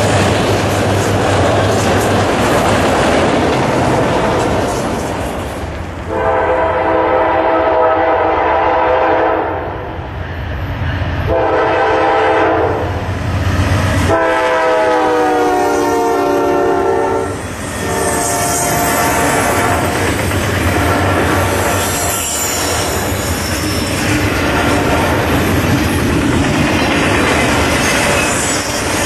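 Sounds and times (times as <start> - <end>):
diesel locomotive rumble: 0.0 - 8.0, 10.6 - 29.0
locomotive air horn blasts: 6.1 - 9.8, 11.3 - 12.9, 14.1 - 20.0, 20.7 - 23.0.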